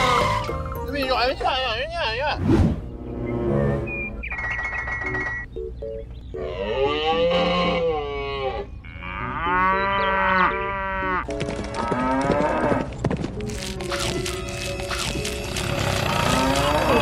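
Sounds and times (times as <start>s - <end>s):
cattle mooing: 6.4s - 12.9s, 15.6s - 17.0s.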